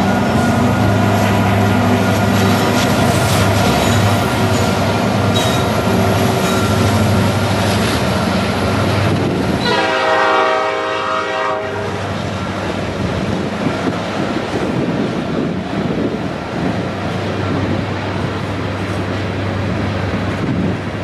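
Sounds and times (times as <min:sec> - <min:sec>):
freight train rumbling: 0:00.0 - 0:21.0
train horn: 0:09.6 - 0:12.1.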